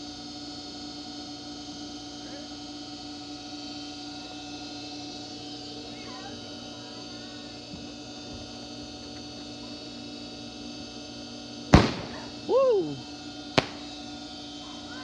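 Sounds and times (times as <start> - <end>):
small sharp pop: 11.8 - 12.3, 13.6 - 13.9
firework bang and crackle: 11.8 - 12.4, 13.6 - 14.0
person yelling: 12.4 - 13.0.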